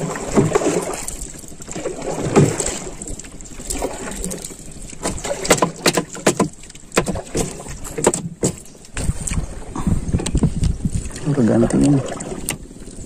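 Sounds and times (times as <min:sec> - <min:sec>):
water lapping at hull: 0:00.0 - 0:13.0
knocks in a wooden canoe: 0:05.0 - 0:09.4.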